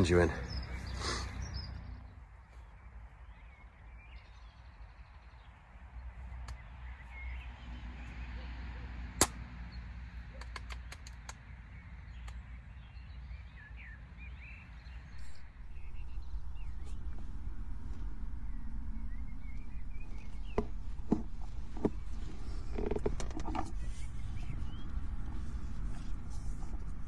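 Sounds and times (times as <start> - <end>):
faint bird chirps: 13.2 - 27.0
low outdoor rumble: 15.1 - 27.0.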